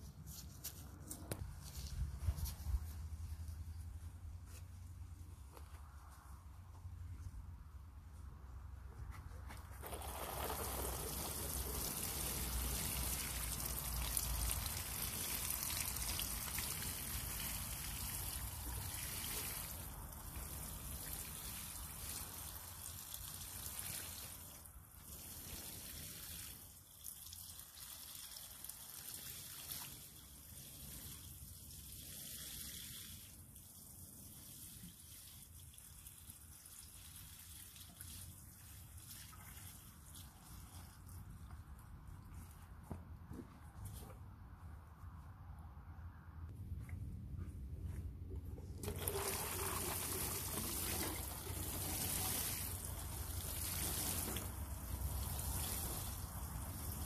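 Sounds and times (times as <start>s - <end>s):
watering can showering plants: 9.3s - 42.7s, 48.6s - 57.0s.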